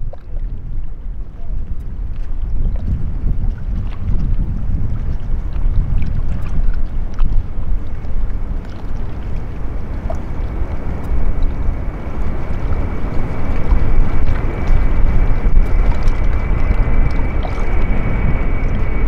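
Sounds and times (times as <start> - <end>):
distant jet rumble: 0.0 - 19.0
wind buffeting microphone: 0.0 - 19.0
steady high whine: 5.2 - 19.0.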